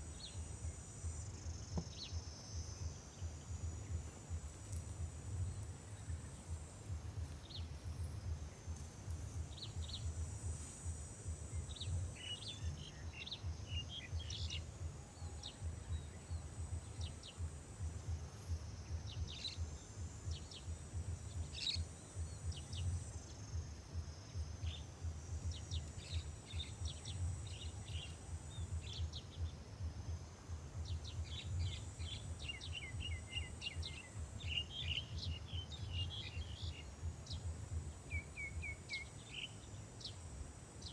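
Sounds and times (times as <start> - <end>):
birds chirping: 0.1 - 40.9.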